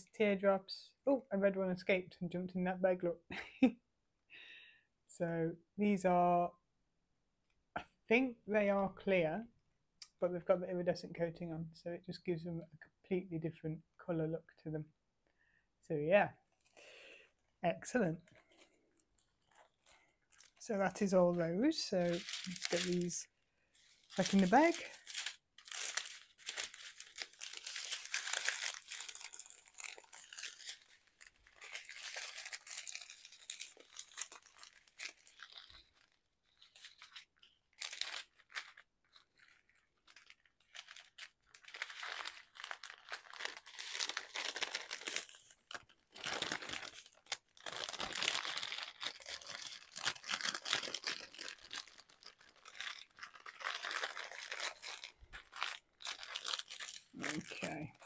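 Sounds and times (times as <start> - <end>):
plastic bags crinkling: 18.2 - 58.0.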